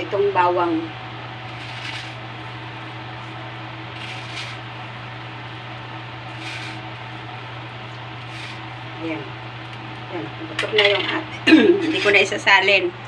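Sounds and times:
low hum: 0.0 - 11.8
soup simmering hiss: 1.4 - 10.0.

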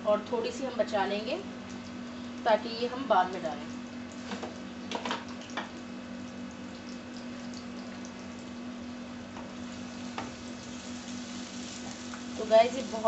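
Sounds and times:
onions sizzling in oil: 9.3 - 13.0.

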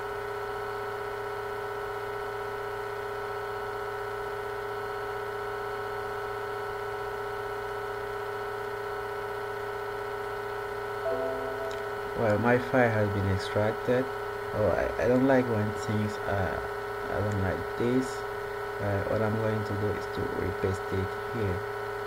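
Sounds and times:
electrical hum and hiss: 11.2 - 22.0.

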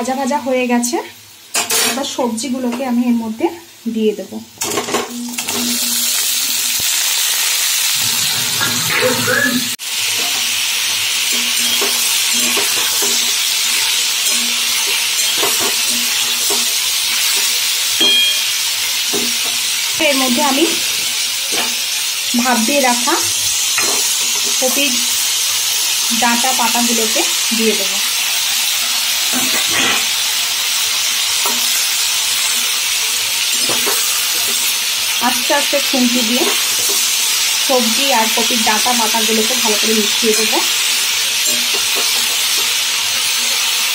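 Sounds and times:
sounds from the pan: 0.0 - 43.9
vegetables sizzling in oil: 0.0 - 43.9
metal spatula scraping a pan: 7.9 - 17.6, 29.3 - 30.2.

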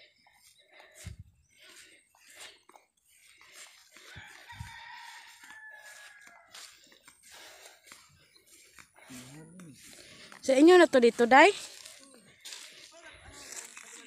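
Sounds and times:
rooster crowing: 4.0 - 6.9.

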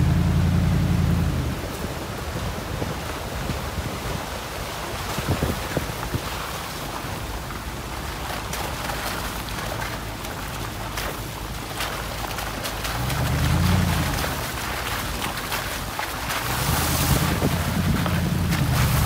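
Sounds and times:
deep rumble: 0.0 - 2.0, 16.3 - 19.0
vehicle engine driving slowly: 0.0 - 3.7, 6.4 - 19.0
wind buffeting microphone: 0.0 - 19.0.

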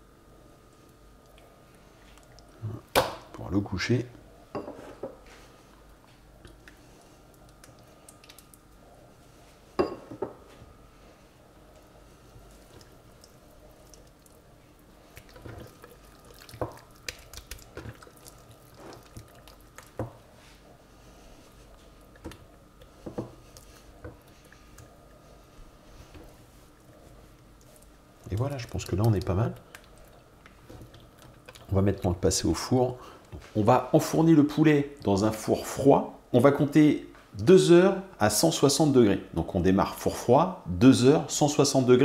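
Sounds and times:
wet squishing of raw chicken: 12.6 - 20.0.

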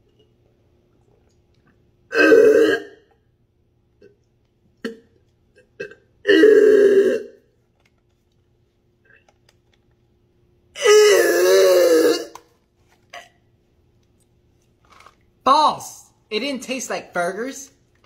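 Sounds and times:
man gagging and retching: 2.1 - 3.2, 4.0 - 7.5, 10.8 - 13.5.

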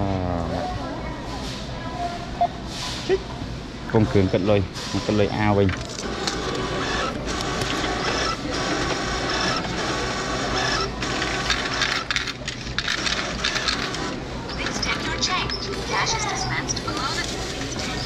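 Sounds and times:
coin dispenser running: 4.0 - 18.0
receipt printer running: 4.0 - 18.0
coins dropping into cup: 11.1 - 14.1.

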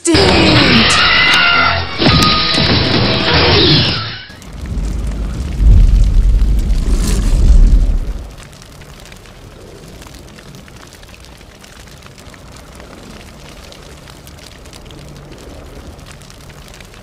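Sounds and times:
fine crackling: 4.3 - 17.0
low rumble: 4.3 - 17.0.

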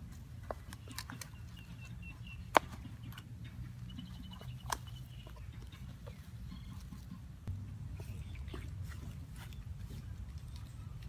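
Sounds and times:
bird chirping: 0.5 - 11.0.

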